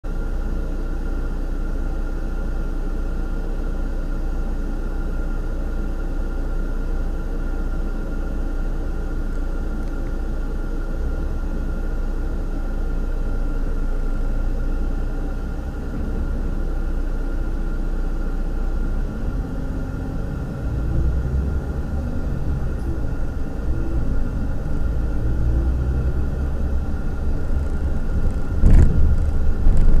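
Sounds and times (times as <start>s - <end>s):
diesel engine idling and revving: 0.0s - 30.0s
sharp thump: 28.4s - 30.0s.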